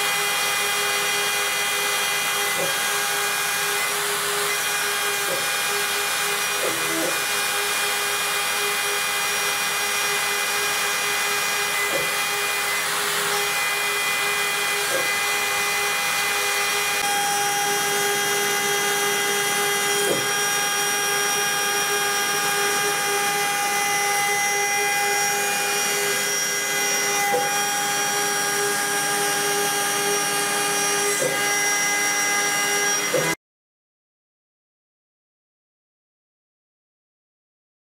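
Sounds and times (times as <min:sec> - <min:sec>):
router spindle motor whining: 0:00.0 - 0:33.4.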